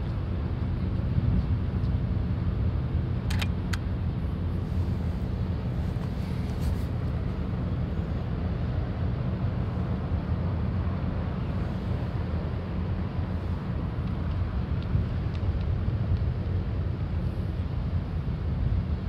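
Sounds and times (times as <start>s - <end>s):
wind buffeting microphone: 8.8s - 19.0s.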